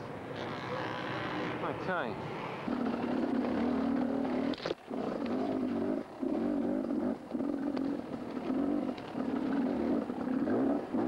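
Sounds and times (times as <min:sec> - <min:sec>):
mini bike engine revving: 0:02.3 - 0:11.0.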